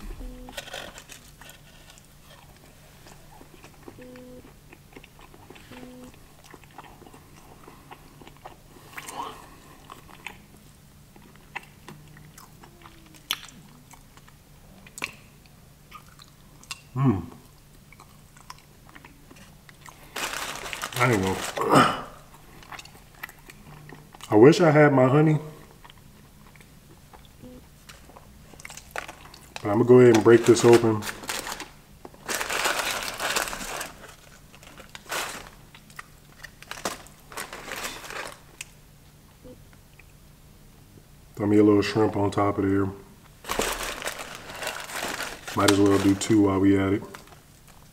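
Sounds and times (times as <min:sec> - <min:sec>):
person chewing biscuit: 0:00.0 - 0:24.3, 0:25.6 - 0:29.6
paper wrapper crinkling: 0:00.1 - 0:02.6, 0:20.0 - 0:21.7, 0:28.7 - 0:38.7, 0:43.4 - 0:47.8.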